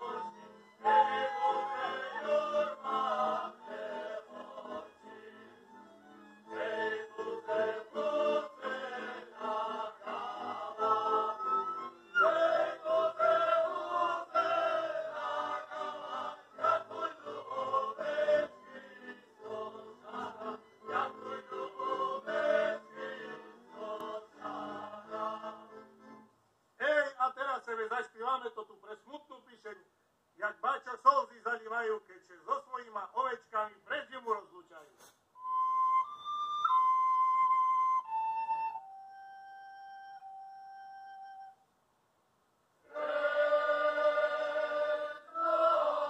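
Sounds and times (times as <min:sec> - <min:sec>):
group of voices singing: 0:00.0 - 0:05.6, 0:06.5 - 0:25.8, 0:42.9 - 0:46.0.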